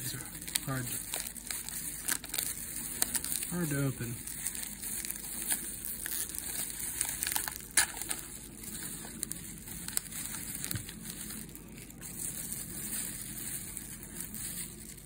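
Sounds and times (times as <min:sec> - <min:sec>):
foil wrapper crinkling: 0:00.0 - 0:15.0.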